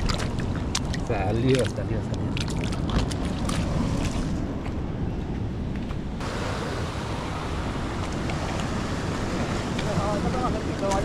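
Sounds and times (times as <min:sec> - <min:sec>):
wind rumble on microphone: 0:00.0 - 0:11.0
surf breaking on rocks: 0:06.2 - 0:11.0.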